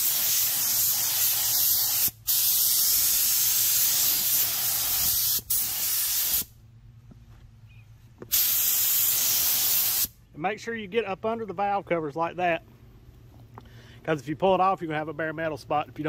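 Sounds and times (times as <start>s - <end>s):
paint spray gun hissing: 0.0s - 6.5s, 8.3s - 10.2s.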